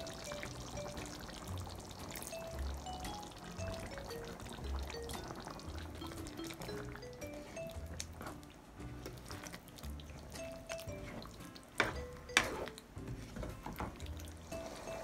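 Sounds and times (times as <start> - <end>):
background music with low beat: 0.0 - 15.0
ladle stirring thick stew: 3.8 - 15.0.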